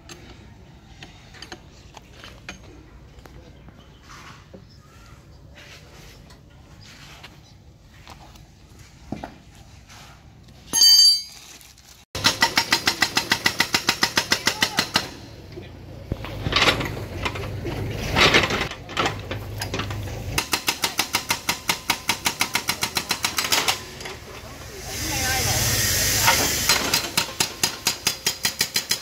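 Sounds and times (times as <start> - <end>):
hydraulic breaker hammering: 12.2 - 15.3
excavator engine running: 12.2 - 28.2.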